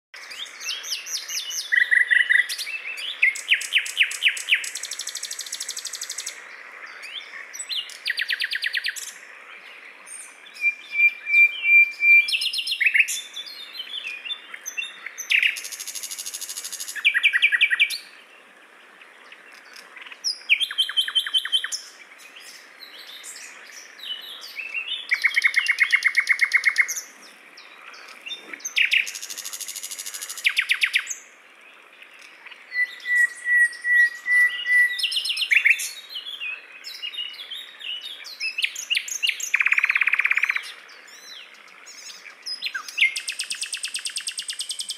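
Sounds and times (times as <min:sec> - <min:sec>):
nightingale singing: 0:00.2 - 0:18.3, 0:19.0 - 0:44.9.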